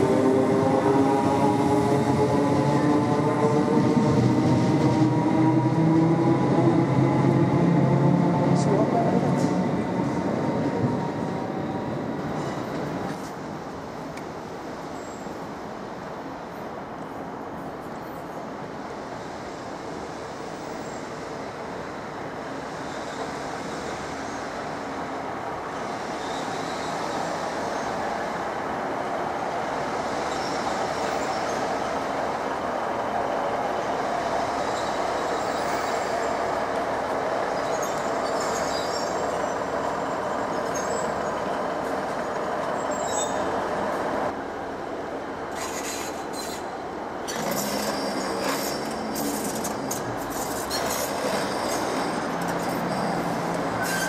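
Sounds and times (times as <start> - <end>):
train wheels rumbling on rail: 0.0 - 16.3, 17.0 - 54.0
high-pitched wheel squeals: 50.3 - 54.0.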